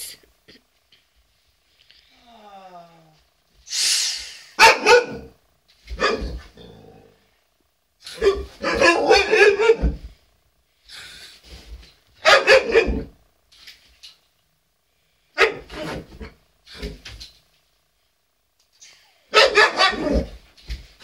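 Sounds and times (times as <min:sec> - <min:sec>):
dog barking and vocalizing: 0:04.6 - 0:05.3, 0:08.1 - 0:10.0, 0:12.2 - 0:13.1, 0:19.3 - 0:20.4.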